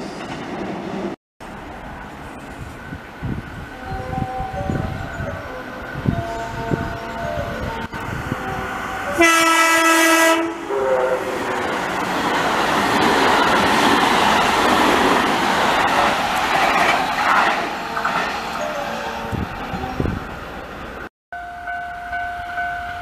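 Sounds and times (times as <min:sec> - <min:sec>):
train wheels rushing on rail: 0:00.0 - 0:21.1
train horn blast: 0:03.7 - 0:12.0.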